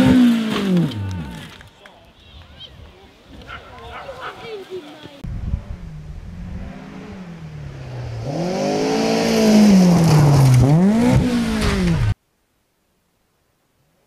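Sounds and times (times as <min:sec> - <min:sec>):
rally car engine revving: 0:00.0 - 0:01.6, 0:05.3 - 0:12.2.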